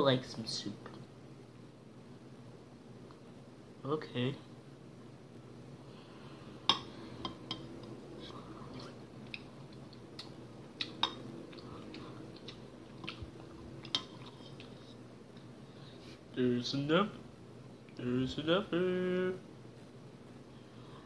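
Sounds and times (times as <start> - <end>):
quiet eating sounds: 5.8 - 16.4.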